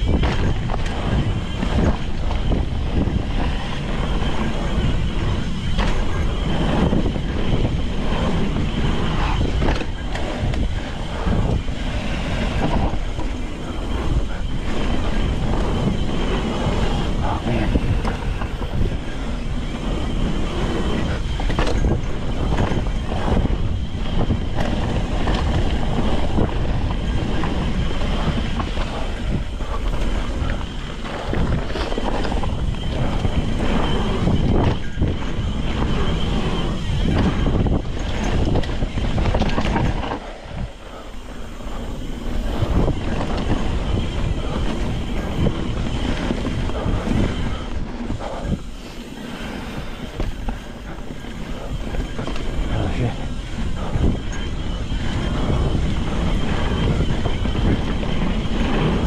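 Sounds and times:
bike knocking and rattling: 0.0s - 59.0s
wind rushing over microphone: 0.0s - 59.0s.

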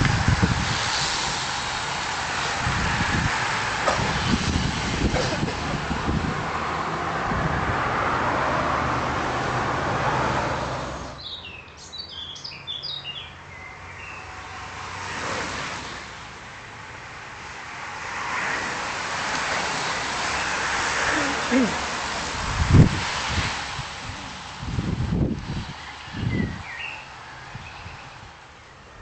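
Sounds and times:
racing bicycles passing: 0.0s - 11.4s, 12.6s - 29.0s
road traffic engine hum: 0.0s - 29.0s
birds chirping: 11.2s - 14.5s, 25.7s - 29.0s.

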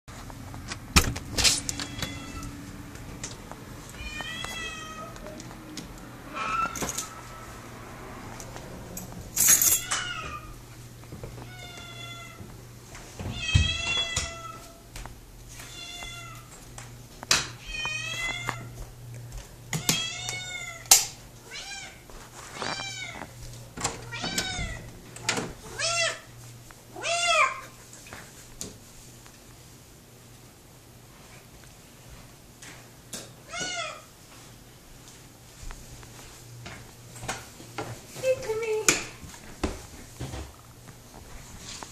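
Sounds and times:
cat meowing loudly: 1.6s - 2.7s, 3.9s - 5.4s, 6.2s - 7.2s, 9.8s - 10.6s, 11.4s - 12.4s, 13.2s - 14.8s, 15.5s - 16.5s, 17.6s - 18.7s, 19.8s - 22.0s, 22.6s - 23.2s, 24.0s - 24.9s, 25.6s - 26.3s, 26.9s - 27.7s, 33.4s - 34.1s.

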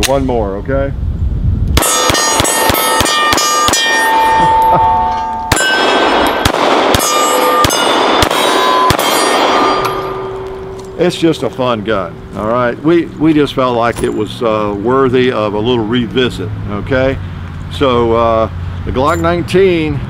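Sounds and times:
rapid pistol shots: 1.8s - 4.0s, 5.5s - 10.4s
steel targets ringing: 1.8s - 14.6s.

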